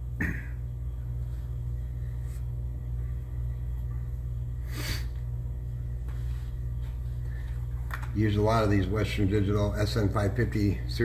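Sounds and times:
steady low hum: 0:00.0 - 0:11.0
breath noise: 0:04.6 - 0:05.2.

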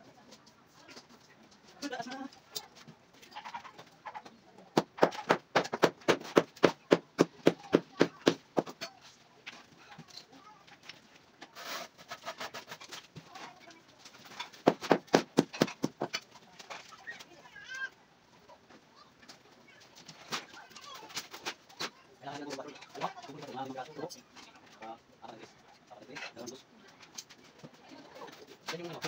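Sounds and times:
rapid taps on concrete block: 0:04.8 - 0:08.8, 0:14.6 - 0:16.2.

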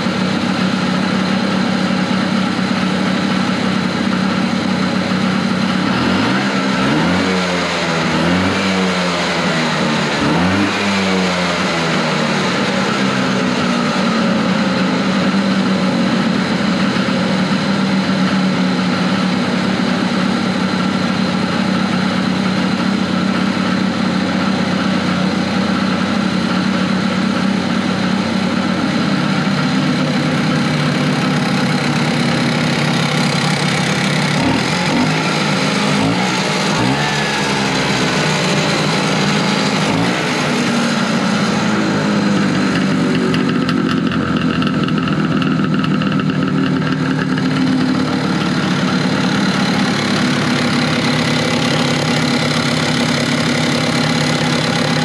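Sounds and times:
snowmobile engine idling and revving: 0:00.0 - 0:55.0.

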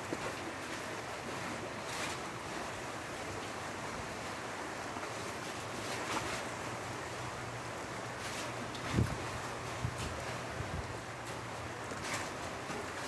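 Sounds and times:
sea surf washing on shore: 0:00.0 - 0:13.0.

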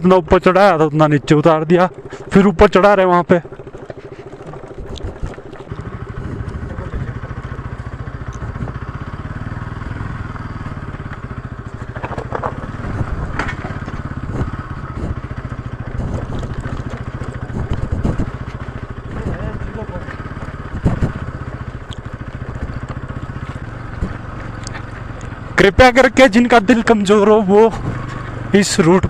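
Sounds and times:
motorcycle engine running: 0:00.0 - 0:29.0
motorcycle clattering over stones: 0:01.6 - 0:08.8, 0:10.9 - 0:25.6.

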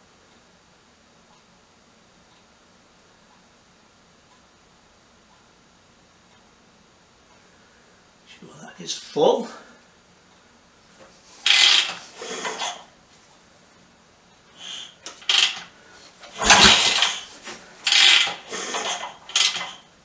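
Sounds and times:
engine turning over: 0:11.4 - 0:12.8, 0:14.6 - 0:19.8
motorcycle kickstart clatter: 0:11.4 - 0:12.9, 0:14.6 - 0:19.9.

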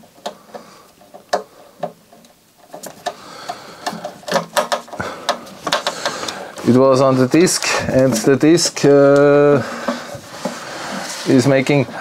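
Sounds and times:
screwdriver clicks and scrapes on metal: 0:00.0 - 0:06.4.

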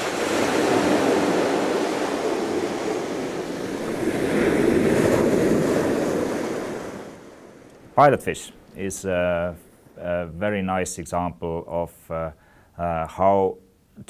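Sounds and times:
ocean surf breaking on beach: 0:00.0 - 0:09.1.

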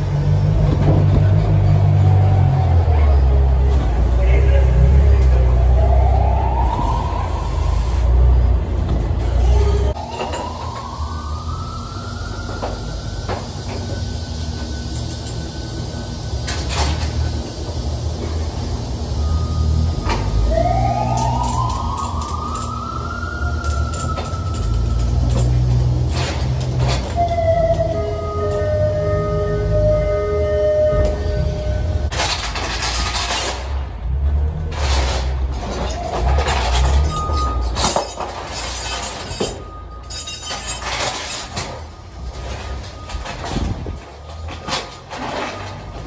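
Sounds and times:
low engine rumble: 0:00.0 - 0:46.0
rising whine: 0:18.3 - 0:32.1
chains clinking and rattling: 0:32.1 - 0:33.8, 0:34.7 - 0:46.0.

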